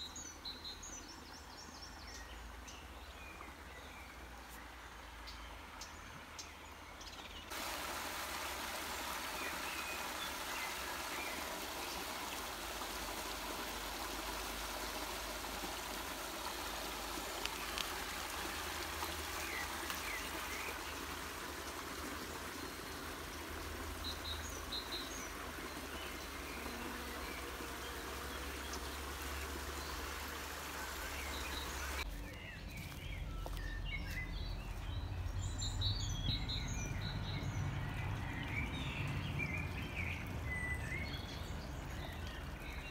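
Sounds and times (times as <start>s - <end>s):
birds chirping: 0.0s - 42.9s
stream water rushing: 7.5s - 32.1s.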